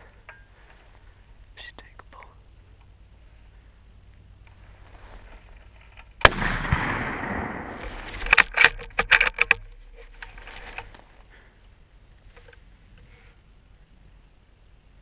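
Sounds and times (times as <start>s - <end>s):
rifle shot echoing: 6.2s - 8.1s.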